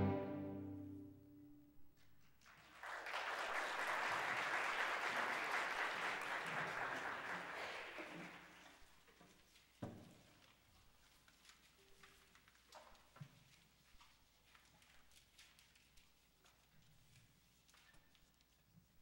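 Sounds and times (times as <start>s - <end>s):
string orchestra chord: 0.0s - 1.4s
audience applauding: 2.5s - 8.8s.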